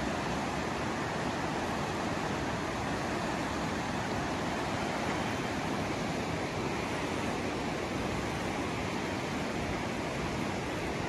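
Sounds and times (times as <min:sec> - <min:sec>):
river rushing over rocks: 0:00.0 - 0:11.0.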